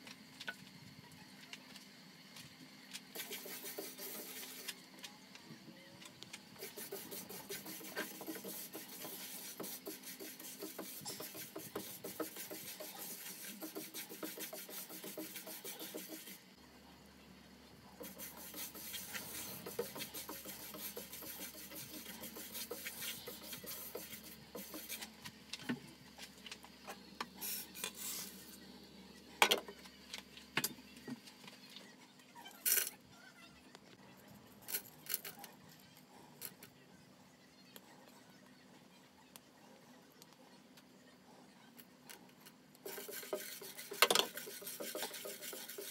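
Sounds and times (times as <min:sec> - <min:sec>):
seeds scraping in a frying pan: 0:27.4 - 0:28.5, 0:42.9 - 0:45.9.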